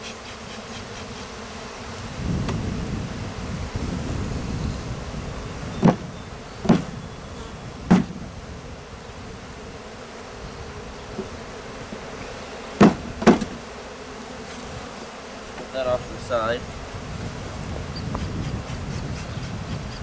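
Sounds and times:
honeybees buzzing: 0:00.0 - 0:20.0
wooden box knocks: 0:05.8 - 0:06.9, 0:07.9 - 0:08.2, 0:12.8 - 0:13.6.

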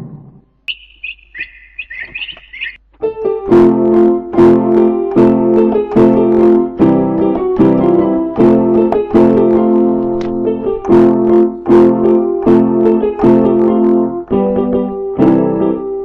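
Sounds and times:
short high chirps: 0:00.7 - 0:02.8
piano chords: 0:00.7 - 0:16.0.

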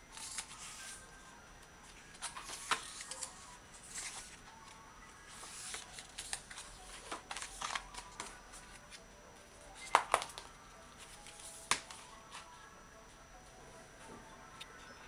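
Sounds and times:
paper pages rustling: 0:00.1 - 0:01.0, 0:01.9 - 0:09.0, 0:09.8 - 0:12.5.

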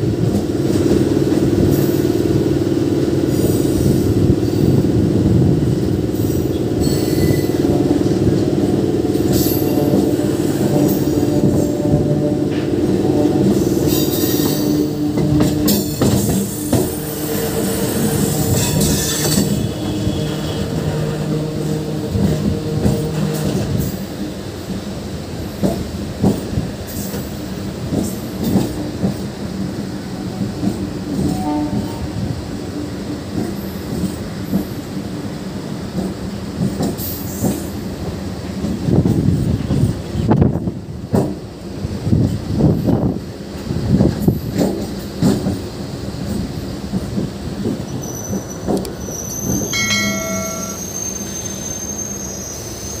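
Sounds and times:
train running hum: 0:00.0 - 0:53.0
train wheel squeal: 0:06.1 - 0:08.4, 0:09.1 - 0:11.8, 0:13.4 - 0:24.1, 0:36.6 - 0:37.9, 0:47.6 - 0:53.0
high wheel squeal: 0:06.3 - 0:07.7, 0:47.9 - 0:53.0
brief tone: 0:49.7 - 0:52.6.

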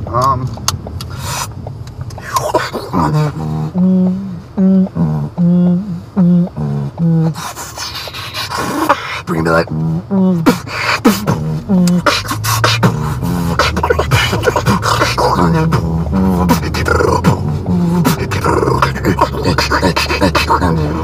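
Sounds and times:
car rumble: 0:00.0 - 0:21.0
person beatboxing: 0:02.1 - 0:21.0
hummed bass notes: 0:02.7 - 0:07.4, 0:09.4 - 0:21.0.

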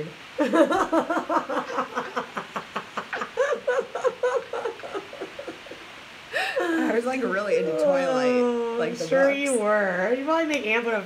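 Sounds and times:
woman laughing hard: 0:00.4 - 0:07.0.

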